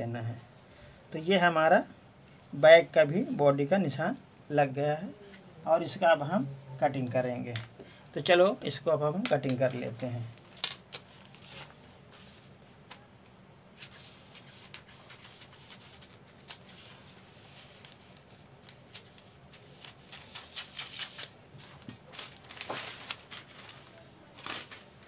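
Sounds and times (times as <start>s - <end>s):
paper rustling: 9.3s - 12.5s, 13.8s - 25.0s
scissors snipping paper: 19.6s - 21.4s.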